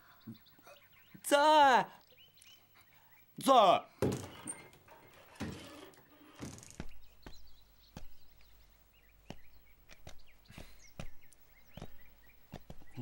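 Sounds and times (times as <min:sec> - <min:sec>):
small birds chirping: 0:00.0 - 0:13.0
footsteps: 0:04.0 - 0:08.3, 0:09.2 - 0:13.0.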